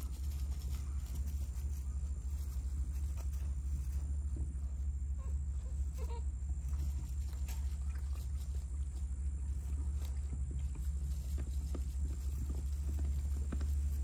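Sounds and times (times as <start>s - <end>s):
steady low rumble: 0.0s - 14.0s
puppies chewing and lapping: 6.6s - 14.0s.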